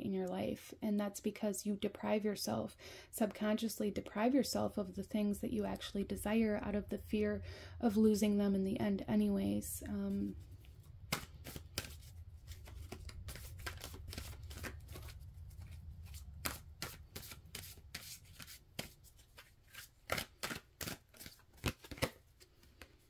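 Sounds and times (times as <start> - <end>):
cards being shuffled: 10.3 - 23.0.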